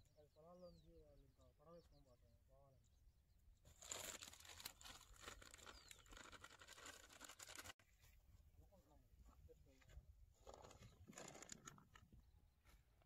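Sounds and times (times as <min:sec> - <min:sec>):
plastic packet crinkling: 0:03.7 - 0:07.8.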